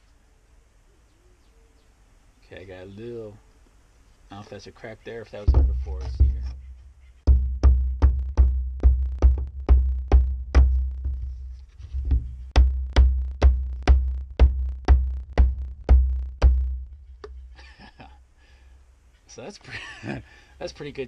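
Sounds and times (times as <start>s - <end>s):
hammer striking wooden block: 5.5s - 6.7s, 7.3s - 11.3s, 12.1s - 17.4s.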